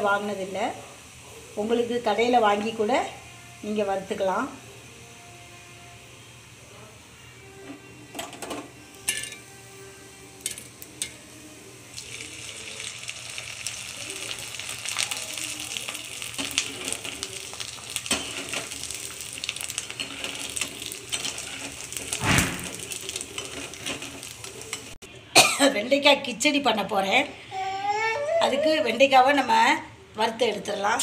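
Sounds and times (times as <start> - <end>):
fryums sizzling in hot oil: 0.0 - 6.9, 8.0 - 25.0.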